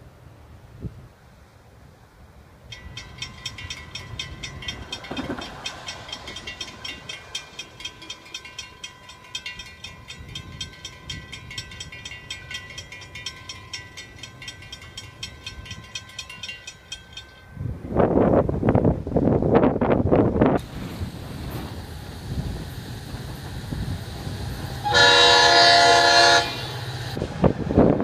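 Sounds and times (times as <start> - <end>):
crossing warning bell ringing: 2.7 - 18.9, 22.4 - 27.2.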